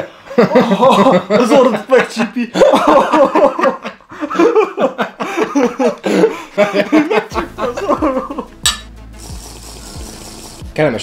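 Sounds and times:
men laughing heartily: 0.0s - 8.6s
drinking glasses clinking: 8.6s - 8.9s.

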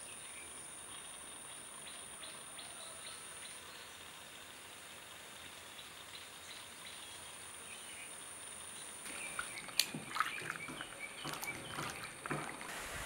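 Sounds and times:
faint background hiss: 0.0s - 9.5s
water splashing in sink: 9.0s - 12.8s.

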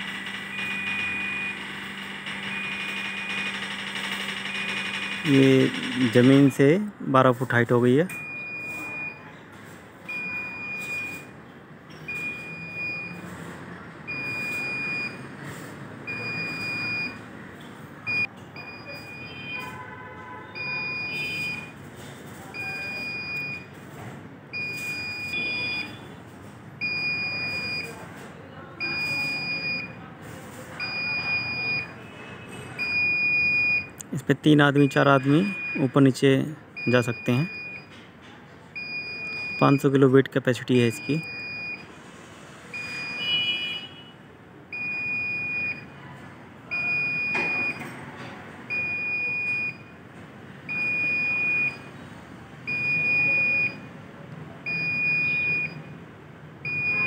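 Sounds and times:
warning buzzer beeping: 0.0s - 9.2s, 16.0s - 17.2s, 18.1s - 21.8s, 24.6s - 26.2s, 30.8s - 36.2s, 36.8s - 37.9s, 40.7s - 41.9s, 42.8s - 44.2s, 54.7s - 56.0s, 56.6s - 57.0s.

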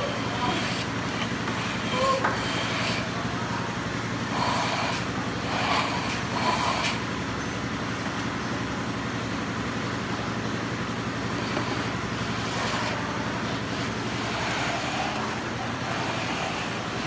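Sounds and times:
trowel scraping cement: 0.0s - 3.2s, 4.2s - 7.0s, 11.4s - 17.0s
engine-like background hum: 0.0s - 17.0s.

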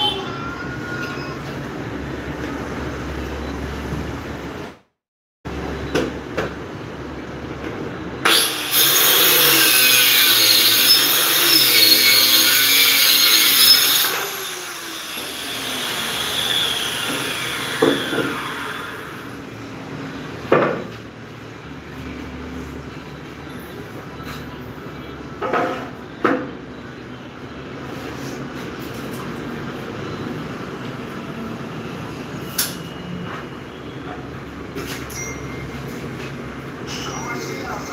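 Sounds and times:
electric saw cutting wood: 8.2s - 19.4s.

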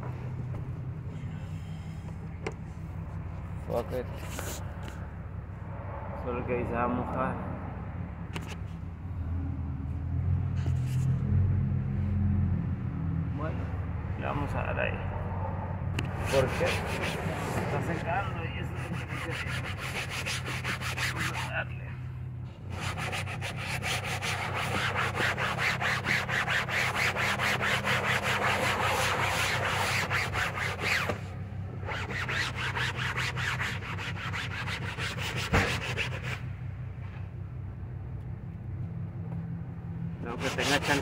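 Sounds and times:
steady low hum: 0.0s - 41.0s
cloth scrubbing fabric: 16.2s - 21.6s, 22.7s - 31.2s, 40.4s - 41.0s.

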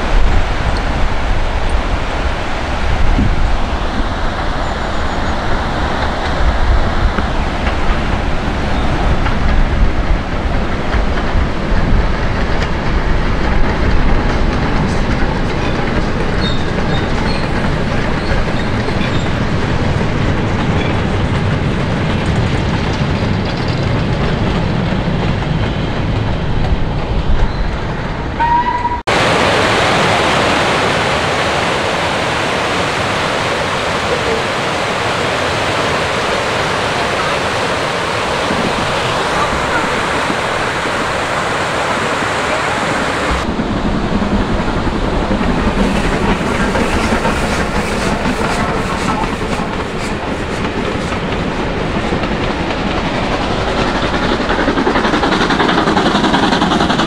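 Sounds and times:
steam train passing: 0.0s - 57.0s
river rushing over rocks: 29.1s - 43.5s.

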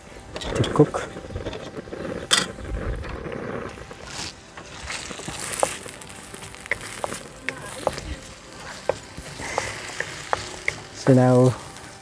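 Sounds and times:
wind buffeting microphone: 0.2s - 4.1s
vegetables frying in oil: 3.9s - 12.0s
wooden spatula tapping wok: 4.9s - 12.0s.

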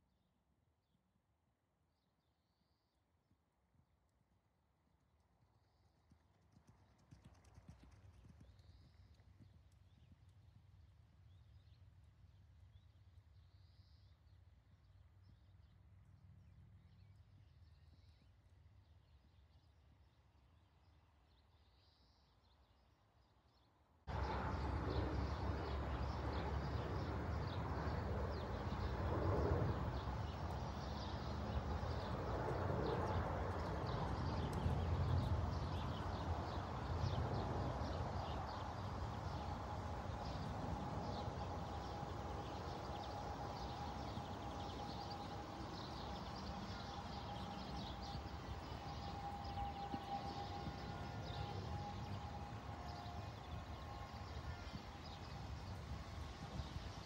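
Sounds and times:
horse hoofbeats cantering in sand: 5.6s - 11.7s, 24.1s - 57.0s
faint high whine: 24.1s - 56.8s
wind rumble on microphone: 24.1s - 57.0s.

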